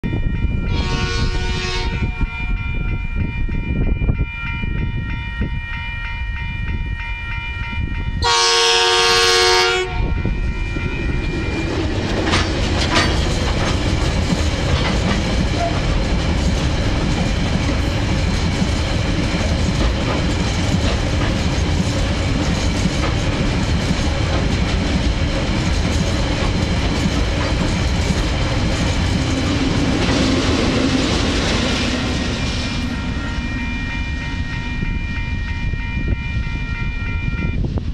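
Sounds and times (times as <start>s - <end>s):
locomotive horn blast: 0.6s - 2.5s, 8.2s - 11.5s, 29.5s - 37.7s
train wheels clattering over rails: 11.2s - 32.9s
level crossing alarm tones: 30.3s - 37.6s.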